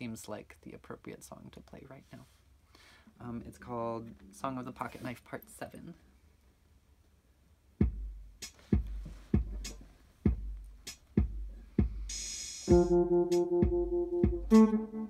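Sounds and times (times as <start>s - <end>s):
beat of low thuds and clicks: 12.7s - 14.8s
ringing electric guitar chords: 12.7s - 15.0s.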